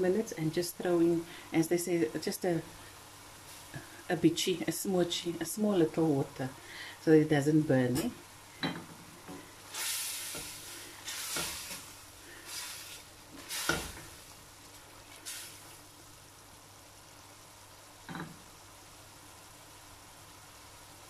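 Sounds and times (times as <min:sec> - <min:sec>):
faint steady sizzle: 0:00.0 - 0:21.0
water splashing into hot oil sizzling: 0:09.7 - 0:16.2.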